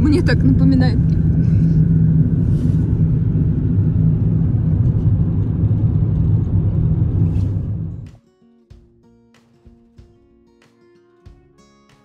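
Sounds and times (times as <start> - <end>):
car road and engine rumble: 0.0 - 8.2
quiet acoustic guitar music: 7.2 - 12.0.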